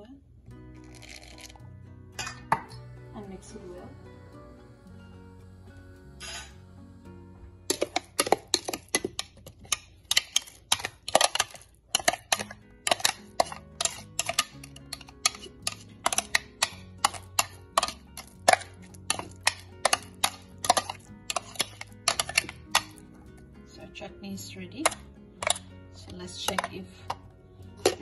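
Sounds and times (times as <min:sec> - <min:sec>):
spoon scraping plastic bowl: 0:00.8 - 0:01.6, 0:06.2 - 0:06.6, 0:07.7 - 0:23.4, 0:24.8 - 0:28.0.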